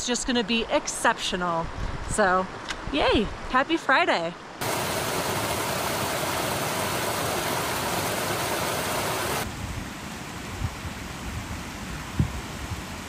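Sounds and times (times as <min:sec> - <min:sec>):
stream cascading over rocks: 0:04.6 - 0:09.5.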